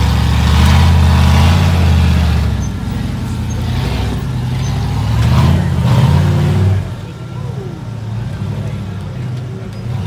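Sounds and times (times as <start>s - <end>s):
buggy engine revving hard: 0.0s - 7.2s.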